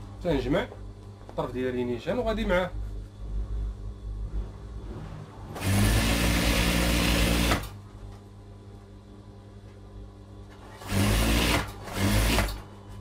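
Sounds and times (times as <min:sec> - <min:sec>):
low steady hum: 0:00.0 - 0:10.9
sewing machine stitching: 0:05.5 - 0:07.8, 0:10.6 - 0:12.6.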